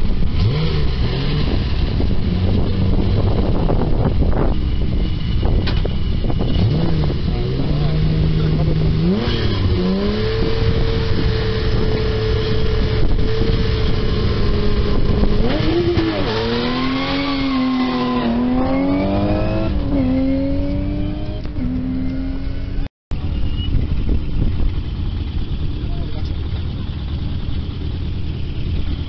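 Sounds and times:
rally car engine revving and accelerating: 0.0 - 22.9.

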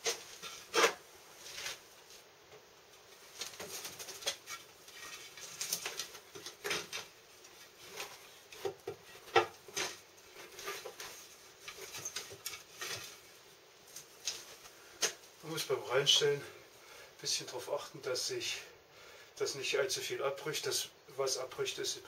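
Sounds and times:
twigs rustling and scratching: 0.0 - 2.3, 3.0 - 15.2
pots knocking and scraping: 7.8 - 13.2.

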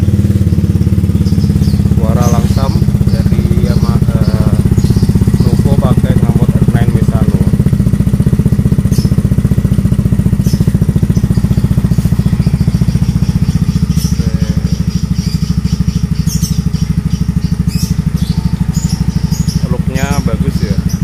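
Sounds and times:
motorcycle engine idling: 0.0 - 21.0.

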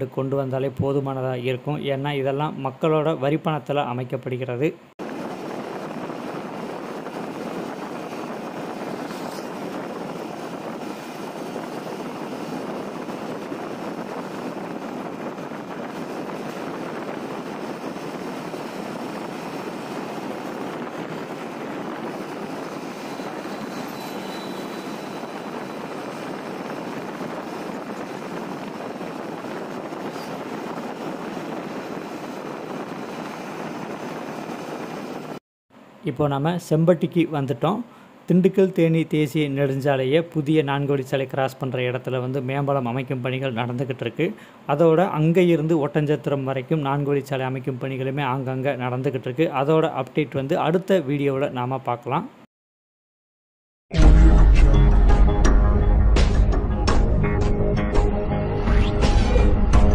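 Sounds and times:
vehicle road and wind noise: 5.0 - 36.0.

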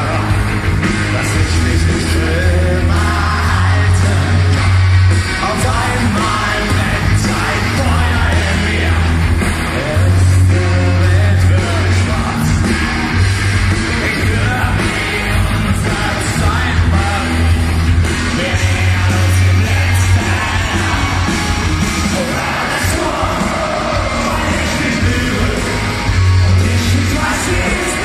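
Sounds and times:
crowd yelling: 0.0 - 28.0
live punk rock band: 0.0 - 28.0
person singing: 5.3 - 12.8, 18.3 - 28.0.

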